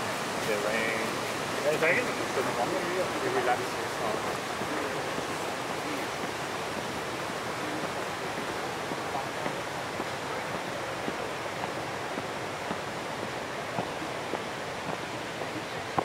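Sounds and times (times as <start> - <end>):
rushing hiss of background noise: 0.0 - 16.0.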